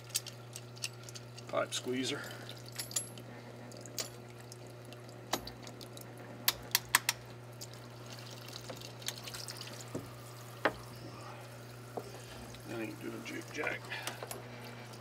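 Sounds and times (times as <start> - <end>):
steady low hum: 0.0 - 15.0
water trickling and dripping: 7.4 - 15.0.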